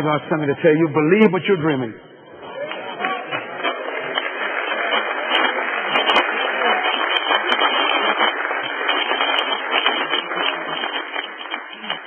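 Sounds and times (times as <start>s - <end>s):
crowd cheering: 2.2s - 12.0s
hand claps: 2.6s - 12.0s.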